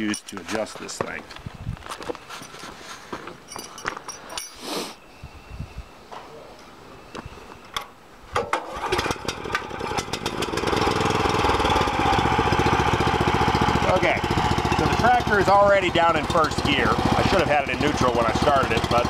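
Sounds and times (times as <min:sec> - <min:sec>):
tractor engine starting and running: 0:08.4 - 0:19.0.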